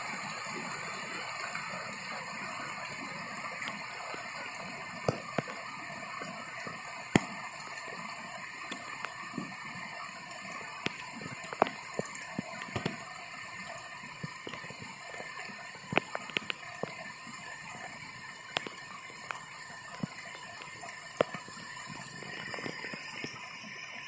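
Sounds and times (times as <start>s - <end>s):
floodwater rushing: 0.0s - 17.0s.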